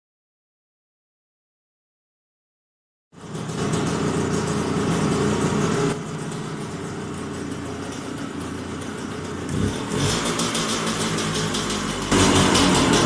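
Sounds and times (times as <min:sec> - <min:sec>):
motorcycle engine idling: 0:03.2 - 0:13.0.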